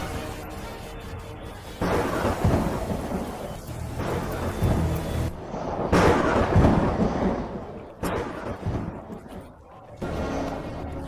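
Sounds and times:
heavy rain: 0.0s - 11.0s
thunder cracking and rumbling: 1.7s - 11.0s.

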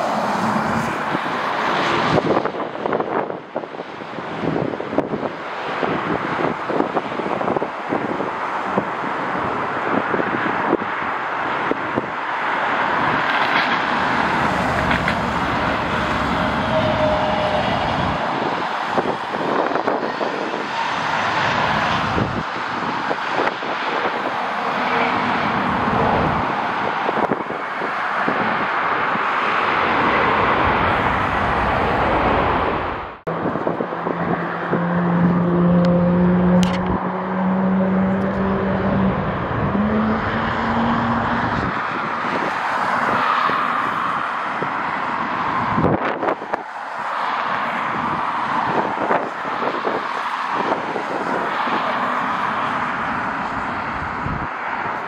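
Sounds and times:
engine noise: 12.0s - 27.6s, 28.6s - 44.2s.

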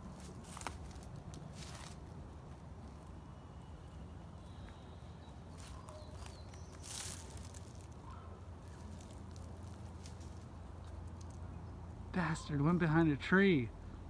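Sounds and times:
short rustling crunch: 0.0s - 2.1s, 5.5s - 11.1s
faint high bird chirps: 3.3s - 8.9s.

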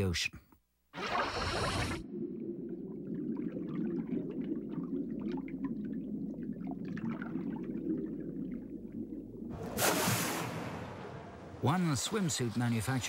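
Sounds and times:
small bubbling and trickling: 1.0s - 11.2s
muffled underwater rush: 1.0s - 13.0s.

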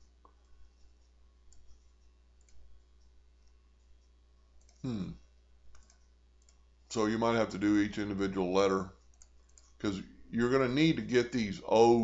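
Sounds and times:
low steady hum: 0.0s - 12.0s
computer mouse clicks: 1.5s - 4.8s, 5.7s - 6.6s, 9.0s - 9.8s.

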